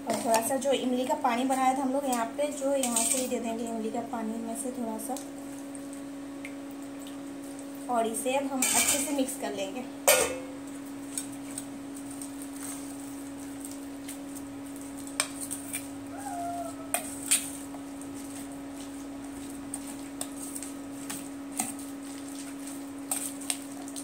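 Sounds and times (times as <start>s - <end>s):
spoon stirring and scraping bowl: 16.9s - 24.0s.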